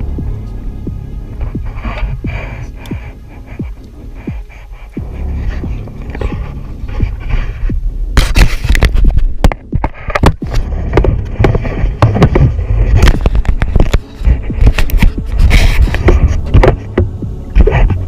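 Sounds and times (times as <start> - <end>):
wind rumble on microphone: 0.0 - 18.0
hand knocking and scraping camera housing: 8.2 - 18.0.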